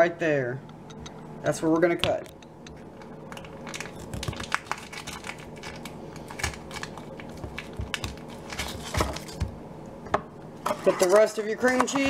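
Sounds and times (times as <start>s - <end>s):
foil wrapper crinkling: 2.8s - 9.5s.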